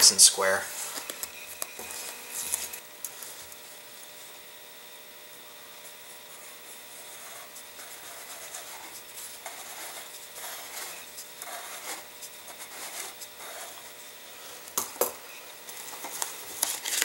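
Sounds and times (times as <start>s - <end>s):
pencil scratching on cardboard: 6.3s - 14.0s.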